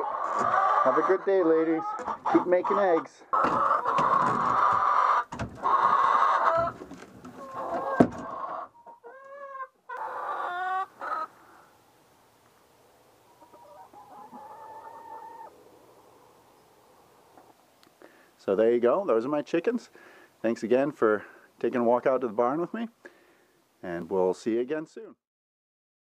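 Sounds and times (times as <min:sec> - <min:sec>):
hen drawn-out calls: 0:00.0 - 0:11.7, 0:13.2 - 0:17.5
hens clucking: 0:00.0 - 0:11.8, 0:12.6 - 0:17.9.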